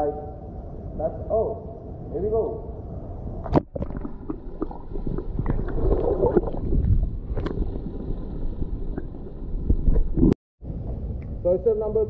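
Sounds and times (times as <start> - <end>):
underwater rumbling and bubbling: 2.9 - 11.2.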